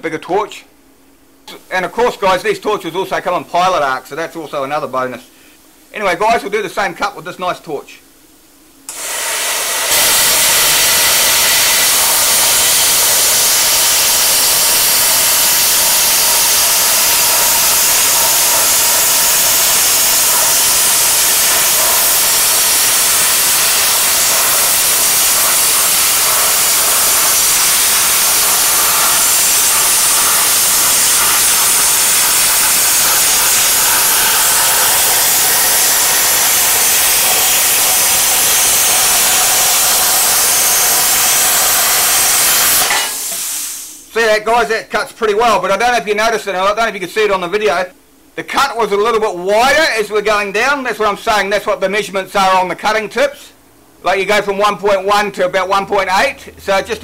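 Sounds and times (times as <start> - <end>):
plasma torch hissing: 8.9 - 44.1.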